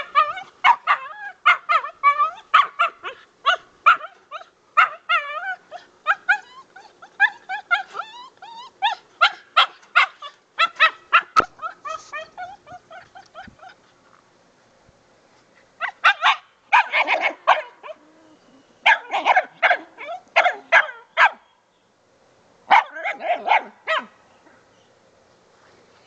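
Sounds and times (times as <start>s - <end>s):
dog barking excitedly: 0.0s - 4.2s, 8.9s - 13.6s, 15.8s - 18.0s, 18.9s - 21.4s, 22.7s - 24.2s.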